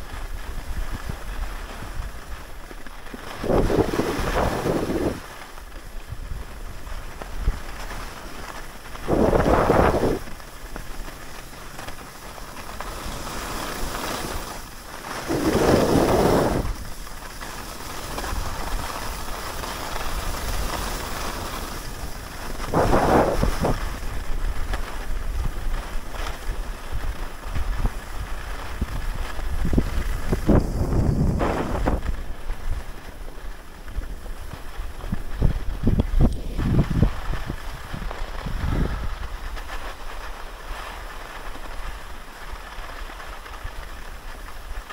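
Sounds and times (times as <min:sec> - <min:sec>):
wind buffeting microphone: 0:00.0 - 0:08.2, 0:08.8 - 0:10.4, 0:15.2 - 0:17.0, 0:21.5 - 0:40.1
skis scraping over snow: 0:00.0 - 0:44.9.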